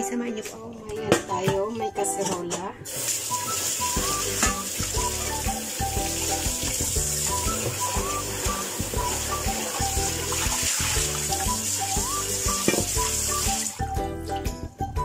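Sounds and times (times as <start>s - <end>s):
background music: 0.0s - 15.0s
tap water splashing in pot: 2.8s - 13.8s.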